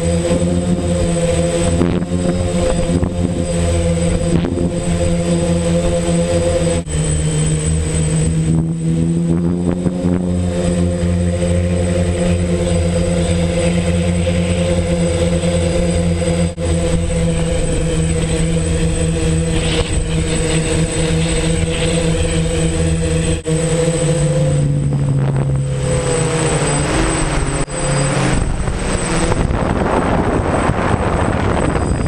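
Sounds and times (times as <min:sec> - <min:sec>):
drone motors and propellers: 0:00.0 - 0:32.0.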